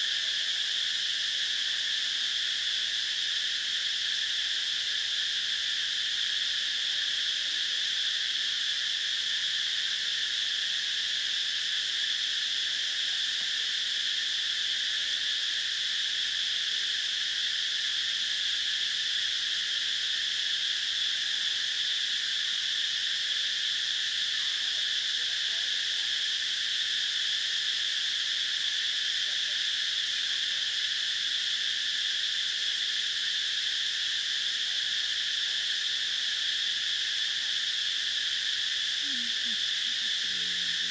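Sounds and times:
insect chorus drone: 0.0 - 40.9.

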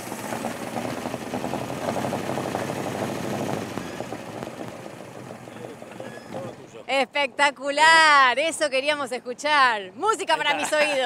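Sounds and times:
boat engine running: 0.0 - 8.5.

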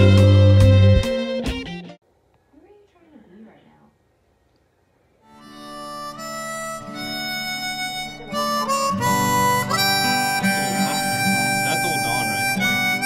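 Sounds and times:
melody of long held notes: 0.0 - 1.9, 5.2 - 13.0
fuller musical accompaniment: 0.0 - 2.0, 5.3 - 13.0.

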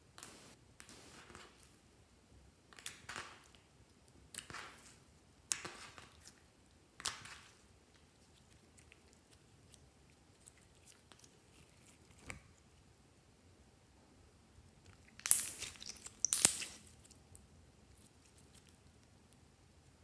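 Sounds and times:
slime squishing: 4.4 - 12.8, 14.8 - 19.1
faint small crackles: 14.8 - 20.0.

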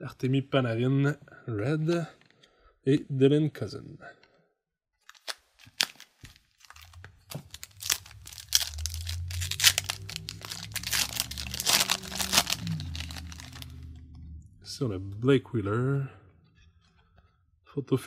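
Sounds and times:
foil wrapper tearing and crinkling: 5.0 - 13.8.

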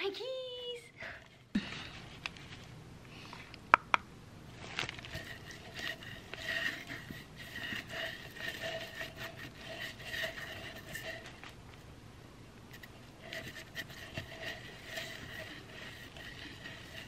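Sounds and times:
paintbrush rubbing strokes: 5.1 - 11.4, 12.8 - 17.0.

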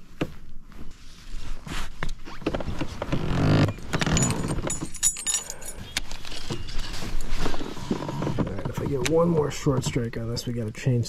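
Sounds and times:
metal blades jingling: 4.1 - 7.0.

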